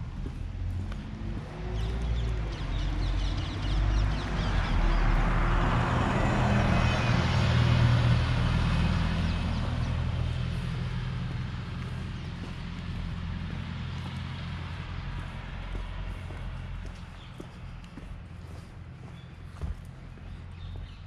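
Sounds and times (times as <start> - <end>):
vehicle driving past: 0.0 - 21.0
birds chirping: 0.3 - 5.2, 9.2 - 21.0.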